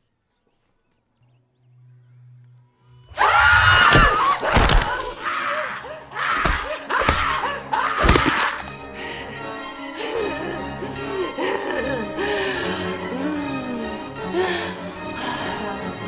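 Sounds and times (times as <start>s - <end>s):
background music: 2.9s - 16.0s.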